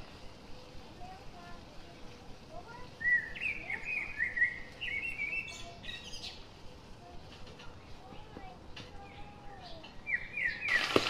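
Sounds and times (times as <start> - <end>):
bird warbling chirps and trills: 2.7 - 7.9, 8.8 - 11.0.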